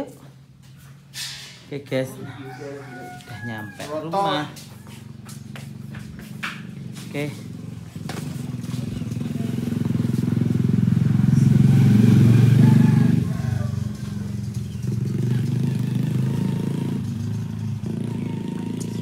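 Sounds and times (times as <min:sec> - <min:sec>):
small motorcycle engine running: 0:05.0 - 0:19.0.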